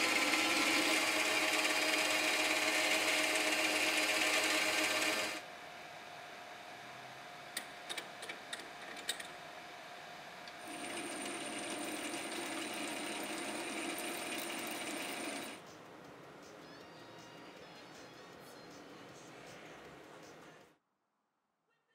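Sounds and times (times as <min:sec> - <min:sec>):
lathe humming: 0:00.0 - 0:05.4, 0:10.5 - 0:15.6
lathe tool cutting metal: 0:00.0 - 0:05.4, 0:10.7 - 0:15.6.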